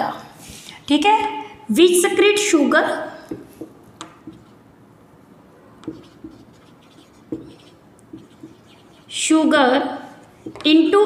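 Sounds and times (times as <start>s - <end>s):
light marker taps: 3.3s - 4.5s, 5.8s - 8.8s, 10.4s - 10.7s
felt tip scratching whiteboard: 4.2s - 4.6s, 5.8s - 9.5s, 10.1s - 10.8s.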